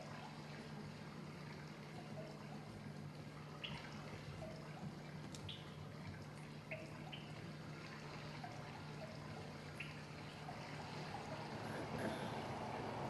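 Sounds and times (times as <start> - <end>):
steady low hum: 0.0 - 13.0
water trickling and dripping: 0.0 - 13.0.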